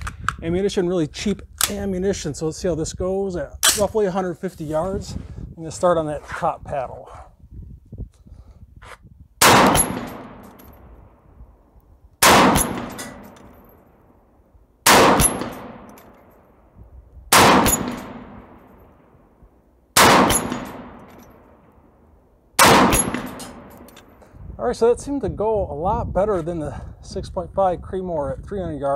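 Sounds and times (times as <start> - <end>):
rifle shots with long echo: 9.4 - 11.3, 12.2 - 16.7, 17.3 - 24.2.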